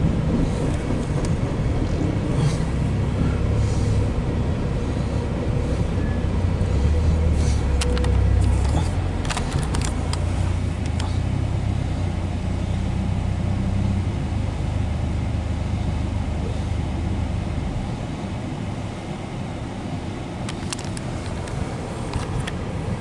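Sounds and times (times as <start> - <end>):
freight train rolling on rails: 0.0 - 14.4
sharp clicks: 7.8 - 8.6.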